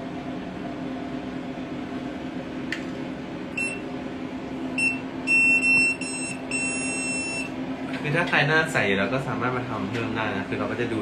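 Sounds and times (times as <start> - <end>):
steady low hum: 0.0 - 11.0
electronic machine beeps: 3.6 - 3.8, 4.8 - 7.5.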